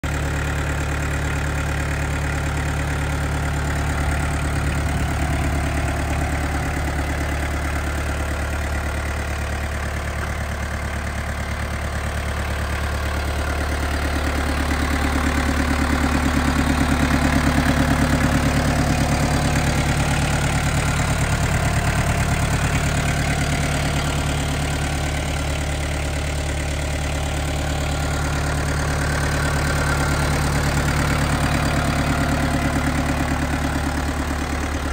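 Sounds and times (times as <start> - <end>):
tractor diesel engine idling: 0.0 - 34.9.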